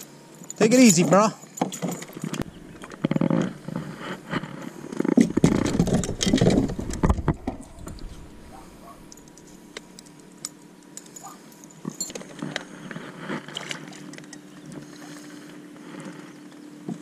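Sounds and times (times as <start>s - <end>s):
clicks and knocks on kayak hull: 5.0s - 8.2s.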